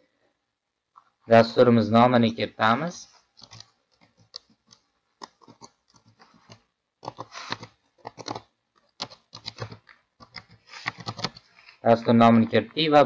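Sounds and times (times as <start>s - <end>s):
computer keyboard typing: 3.4s - 11.5s.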